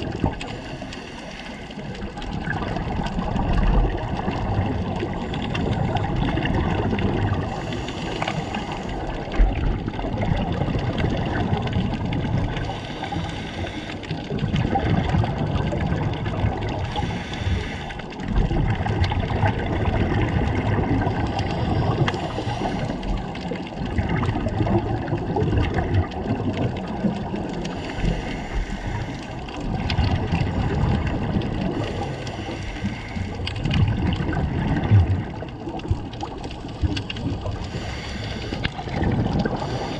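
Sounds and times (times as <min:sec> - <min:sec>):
bubbling exhalations: 0:00.0 - 0:39.9
regulator breathing hiss: 0:07.5 - 0:09.1, 0:12.6 - 0:14.1, 0:16.9 - 0:18.0, 0:22.0 - 0:23.2, 0:27.7 - 0:29.3, 0:31.8 - 0:33.4, 0:37.6 - 0:38.7, 0:39.6 - 0:39.9.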